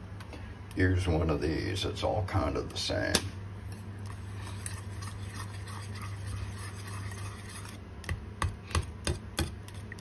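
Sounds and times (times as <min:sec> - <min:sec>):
low steady hum: 0:00.0 - 0:10.0
whisk scraping a saucepan: 0:03.7 - 0:07.8
whisk knocking pan: 0:04.4 - 0:10.0.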